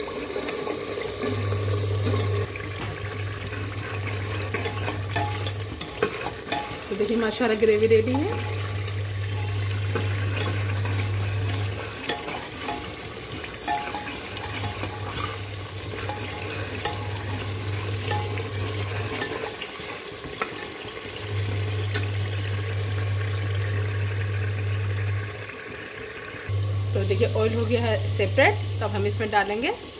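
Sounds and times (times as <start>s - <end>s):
gravy sizzling in oil: 0.0s - 29.9s
ladle scraping a pot: 1.2s - 7.3s, 8.1s - 20.6s
ladle clicking against pot: 11.5s - 19.6s.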